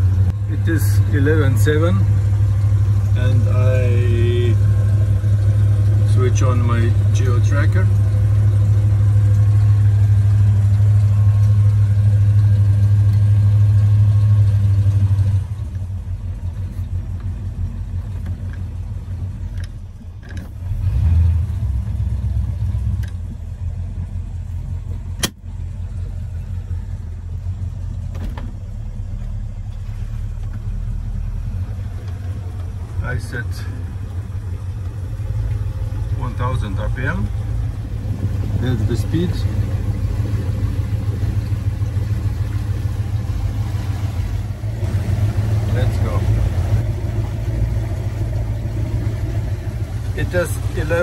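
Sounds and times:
boat engine running: 0.0s - 51.0s.

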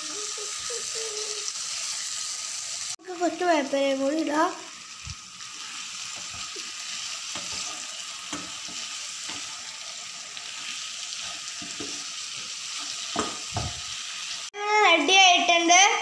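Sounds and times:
liver sizzling in pan: 0.0s - 14.6s
spatula scraping pan: 5.5s - 14.3s.

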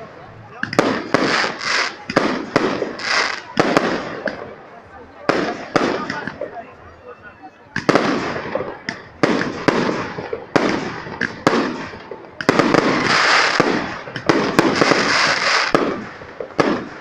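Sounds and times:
fireworks bangs: 0.0s - 6.8s, 7.7s - 17.0s
fireworks stars hissing: 1.0s - 3.6s, 12.8s - 16.3s.

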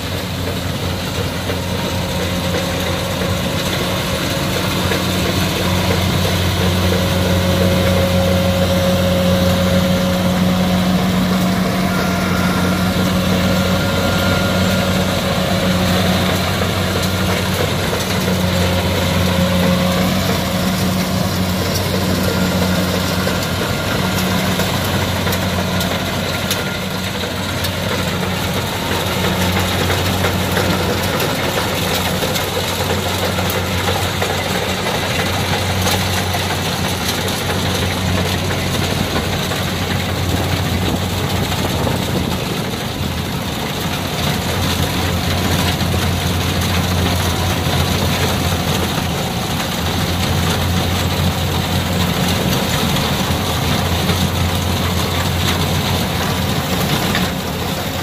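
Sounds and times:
faint machine whine: 0.0s - 36.8s
combine harvester engine drone: 0.0s - 58.0s.

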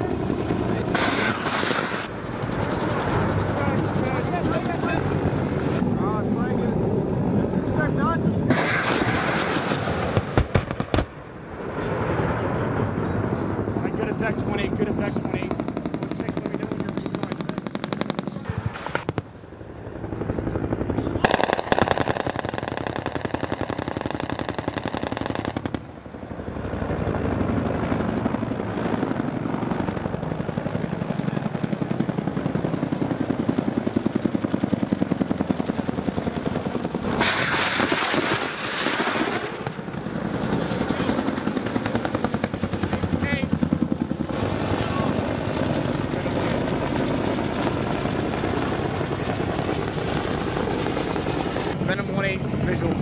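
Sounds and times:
automatic gunfire bursts: 21.2s - 25.8s.

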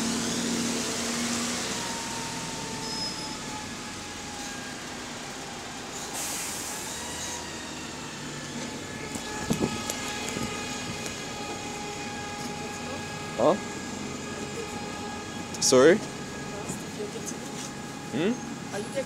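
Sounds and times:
bus diesel engine humming: 0.0s - 19.0s
air brake hiss: 6.0s - 7.4s.

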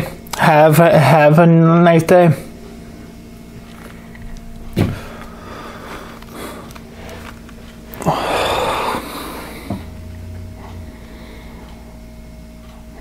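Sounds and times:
steady low hum: 0.0s - 13.0s
man sighing: 8.0s - 9.9s.

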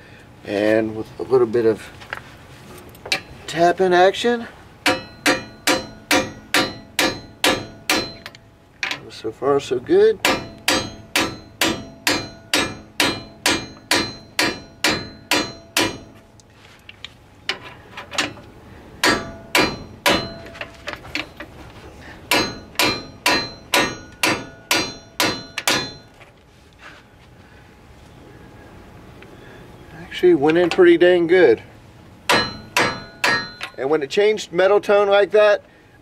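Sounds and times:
hammer tapping metal: 4.8s - 9.0s, 10.2s - 16.2s, 19.0s - 20.7s, 22.3s - 26.1s, 32.3s - 33.8s.

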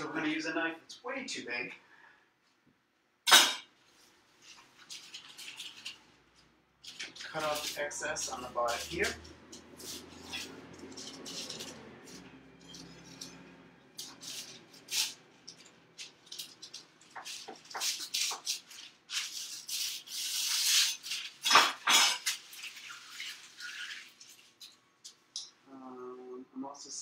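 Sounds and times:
paper rustling and crinkling: 3.9s - 13.4s, 14.0s - 24.8s.

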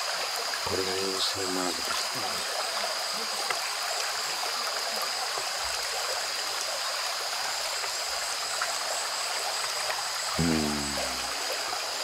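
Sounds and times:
brook trickling over stones: 0.0s - 12.0s.

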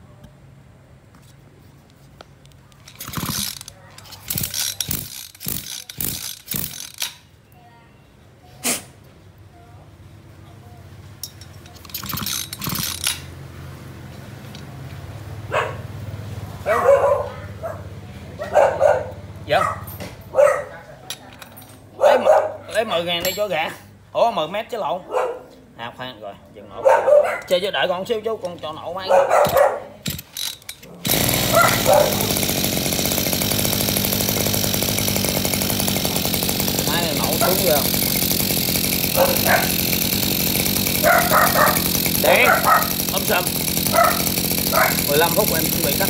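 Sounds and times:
brushcutter engine running: 2.7s - 7.2s, 11.5s - 13.4s, 29.1s - 46.0s
dog barking: 15.5s - 15.9s, 16.6s - 21.0s, 22.0s - 22.8s, 25.0s - 25.6s, 26.8s - 27.6s, 29.0s - 30.0s, 31.5s - 32.2s, 39.2s - 39.8s, 41.0s - 41.8s, 42.4s - 42.9s, 43.9s - 45.0s.

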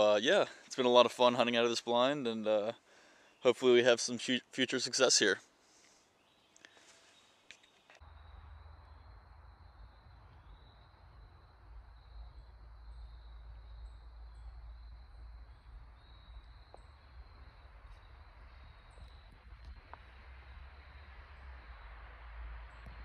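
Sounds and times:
low rumble on microphone: 8.0s - 23.0s.

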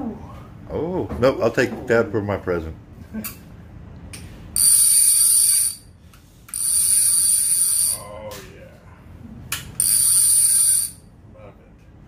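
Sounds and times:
fishing reel ratchet buzzing: 4.6s - 5.9s, 6.5s - 8.0s, 9.8s - 11.0s.

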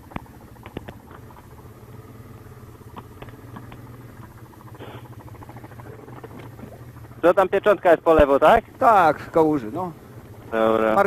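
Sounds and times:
engine running steadily: 0.0s - 11.0s
faint clicks: 2.9s - 4.4s.

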